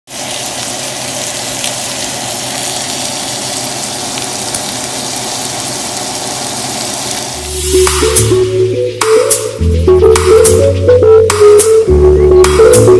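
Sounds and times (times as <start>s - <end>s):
steak and onions sizzling in pan: 0.1s - 7.9s.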